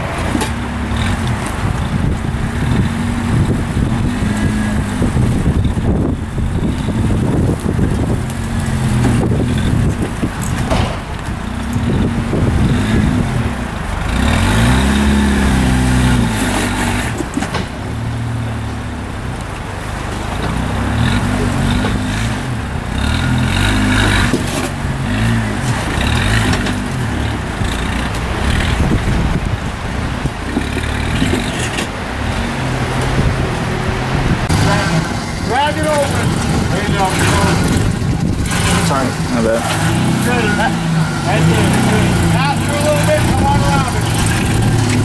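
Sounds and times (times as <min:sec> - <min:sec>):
engine revving: 0:00.0 - 0:19.2, 0:20.2 - 0:45.0.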